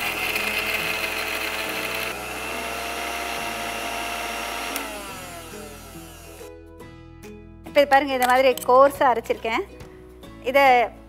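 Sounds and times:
mixer grinder motor whine: 0.0s - 6.5s.

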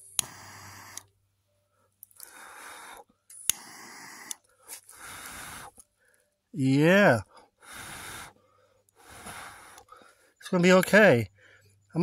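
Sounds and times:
person blowing short breaths: 2.2s - 5.8s, 7.6s - 8.4s, 9.0s - 10.0s.

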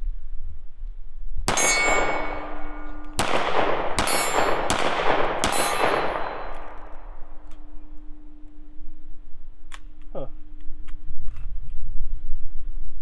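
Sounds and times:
pistol shots: 1.5s - 7.4s
metallic ringing: 1.5s - 10.6s.

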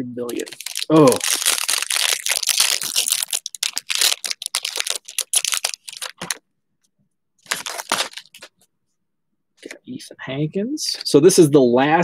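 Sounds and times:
foil wrapper crinkling: 0.3s - 6.4s, 7.4s - 8.5s.

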